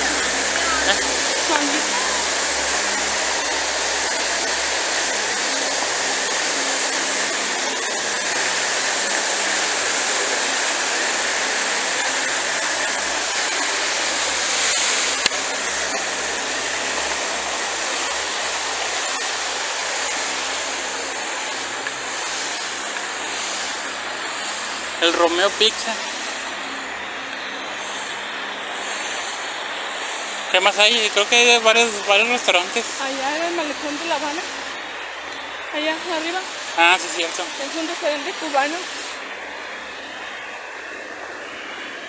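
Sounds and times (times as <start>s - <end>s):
fountain water splashing: 0.0s - 42.0s.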